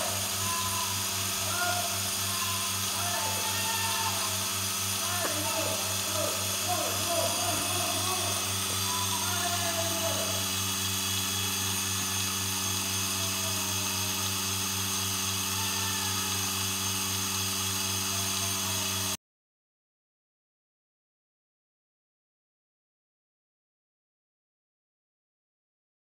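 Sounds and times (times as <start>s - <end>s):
faint voices: 0.0s - 10.7s, 12.2s - 14.4s
electric machine humming: 0.0s - 19.2s.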